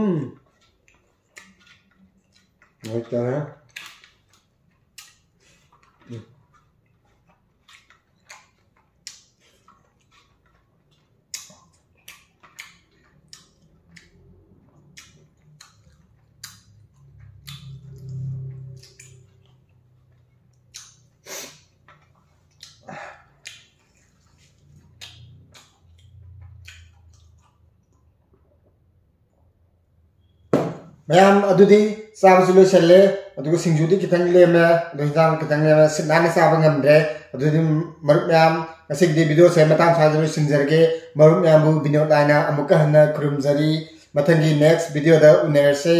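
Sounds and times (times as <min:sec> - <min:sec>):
person chewing noisily: 0:00.0 - 0:28.8.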